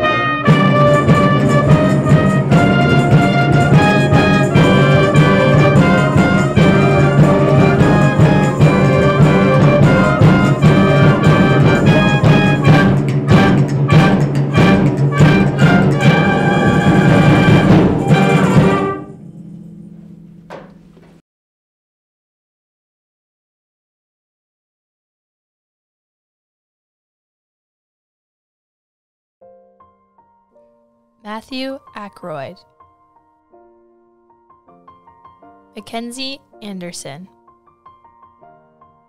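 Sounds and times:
concert band playing: 0.0s - 19.1s
sharp drum strikes: 0.4s - 19.6s, 20.4s - 21.2s.

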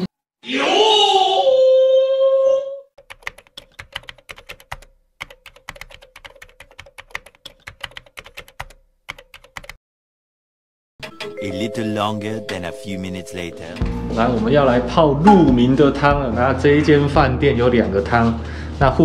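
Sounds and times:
keyboard typing clicks: 3.0s - 9.8s, 11.0s - 12.7s.

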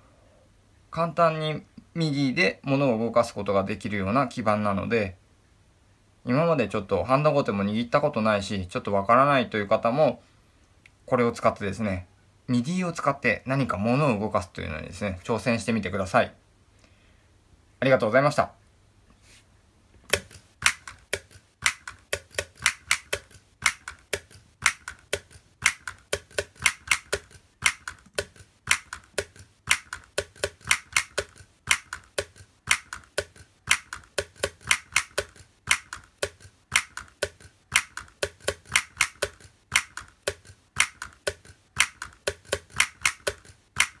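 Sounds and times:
balloon clappers slapping: 20.1s - 44.0s
striker tapping small drum: 20.1s - 44.0s.

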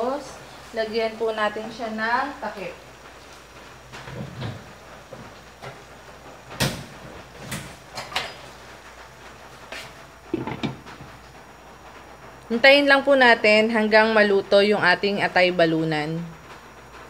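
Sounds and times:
kitchen things knocking and clinking: 6.6s - 8.6s, 10.3s - 11.1s.

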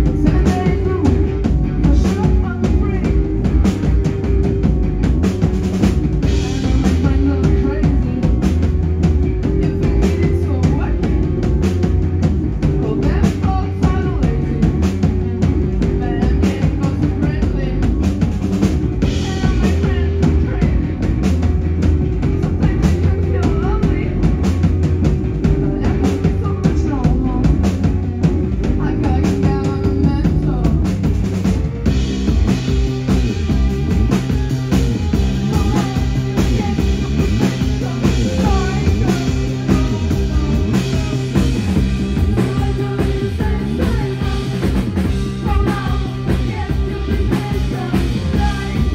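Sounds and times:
woman singing: 0.0s - 3.2s, 6.2s - 8.5s, 9.4s - 11.5s, 12.6s - 18.2s, 19.0s - 21.0s, 22.4s - 24.4s, 25.5s - 27.7s, 28.7s - 31.0s, 35.0s - 48.9s
drum kit beat: 0.0s - 48.9s
electric guitar: 0.0s - 48.9s.

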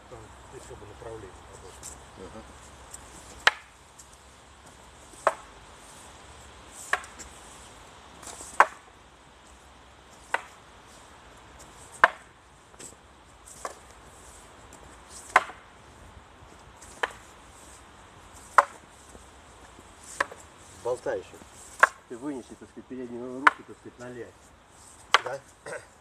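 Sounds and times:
wooden staffs clacking: 3.0s - 3.8s, 5.2s - 5.5s, 6.8s - 7.3s, 8.2s - 8.9s, 12.0s - 13.0s, 15.2s - 15.7s, 18.4s - 18.8s, 20.0s - 20.5s, 21.7s - 22.1s, 23.4s - 23.7s, 25.0s - 25.4s.

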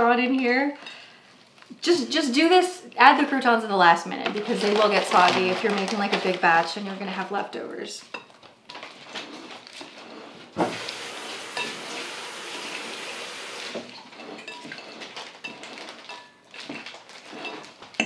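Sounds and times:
tongs clinking against glass: 15.4s - 18.0s.

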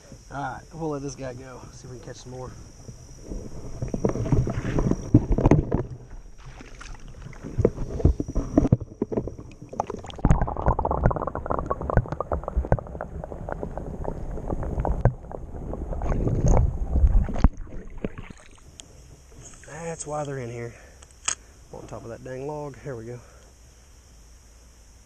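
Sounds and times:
muffled underwater rumble: 0.0s - 20.9s
small underwater clicks: 2.8s - 18.9s
water splashing and sloshing: 2.9s - 18.8s.

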